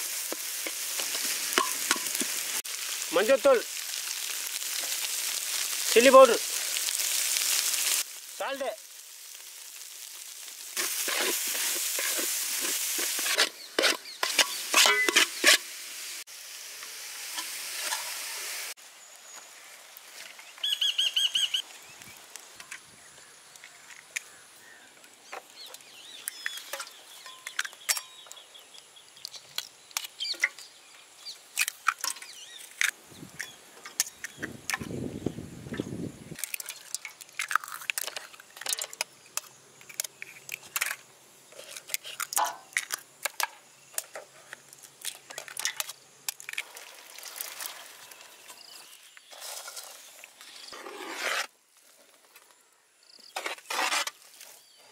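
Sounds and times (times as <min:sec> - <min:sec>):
food sizzling in a pan: 0:00.0 - 0:51.5
spatula scraping and knocking: 0:10.8 - 0:15.6.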